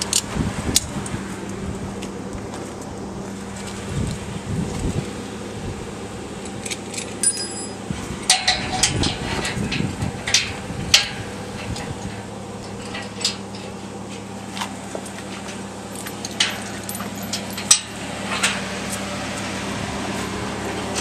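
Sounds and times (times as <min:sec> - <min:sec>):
truck engine idling: 0:00.0 - 0:21.0
sharp metallic clinks: 0:06.5 - 0:09.0, 0:15.9 - 0:18.0.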